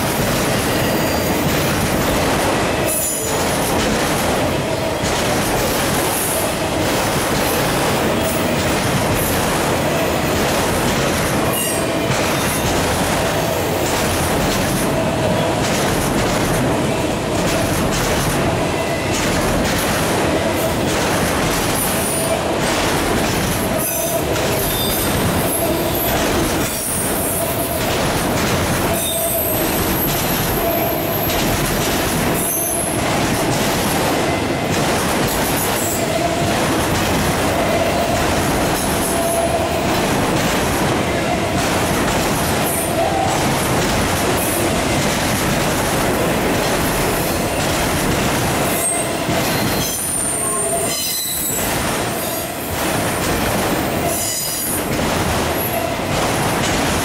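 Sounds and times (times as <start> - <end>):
train wheels roaring on rail: 0.0 - 57.0
squealing wheels: 48.8 - 51.6.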